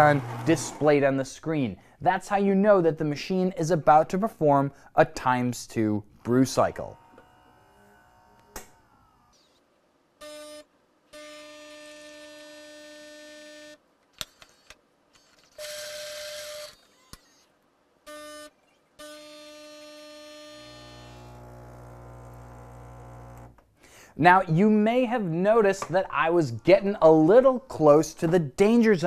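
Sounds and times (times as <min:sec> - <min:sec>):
espresso machine pump humming: 0:00.0 - 0:00.8, 0:20.3 - 0:23.5.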